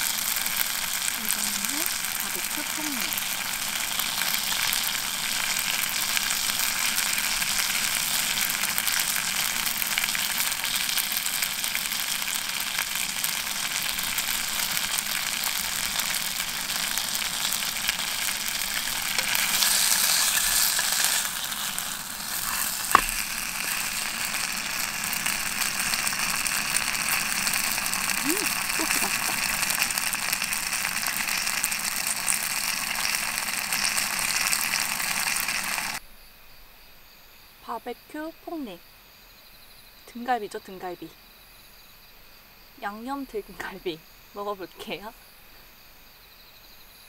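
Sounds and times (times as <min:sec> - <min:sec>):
food sizzling in a pan: 0:00.0 - 0:36.0.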